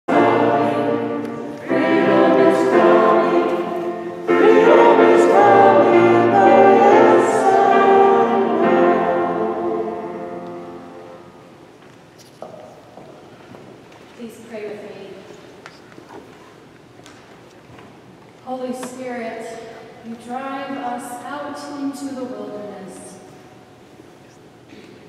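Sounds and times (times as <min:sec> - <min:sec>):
choir singing held chords: 0:00.1 - 0:11.6.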